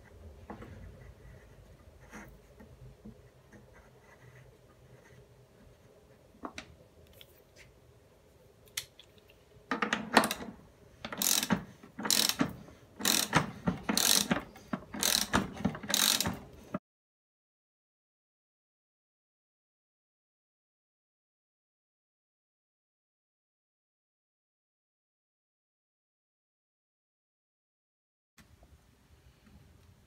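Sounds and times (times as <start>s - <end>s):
ratchet wrench clicking: 11.1s - 12.4s, 13.0s - 14.4s, 15.0s - 16.4s.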